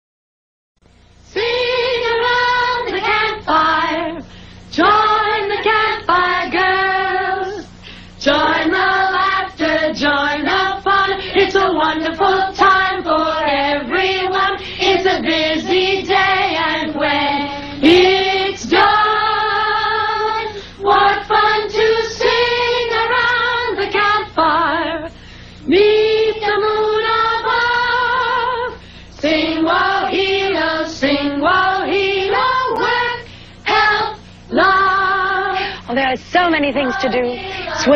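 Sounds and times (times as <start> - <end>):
faint low hum: 0.8 - 37.9
girls choir singing: 1.3 - 35.9, 36.5 - 37.9.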